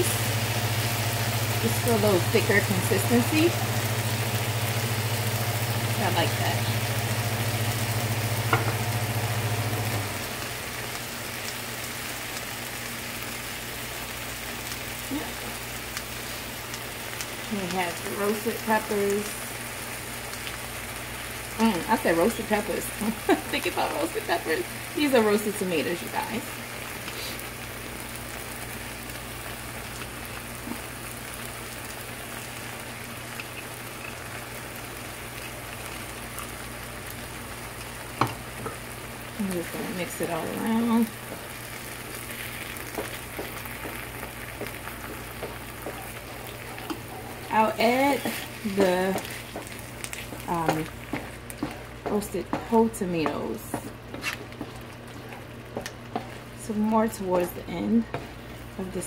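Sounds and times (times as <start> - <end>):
sauce sizzling in a frying pan: 0.0 - 59.0
low steady hum: 29.4 - 59.0.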